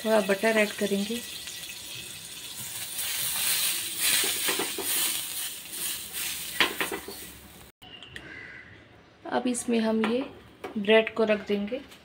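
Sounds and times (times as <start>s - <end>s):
butter sizzling in a pan: 0.0s - 7.5s.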